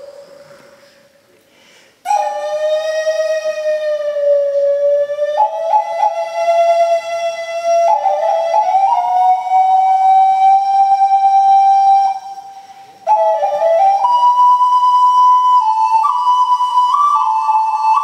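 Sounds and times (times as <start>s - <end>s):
ocarina playing slow melody: 2.0s - 18.0s.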